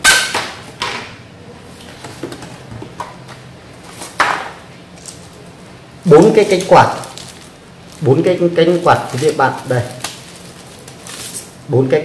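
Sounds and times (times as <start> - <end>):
packaging rustling and scraping: 6.2 - 11.6.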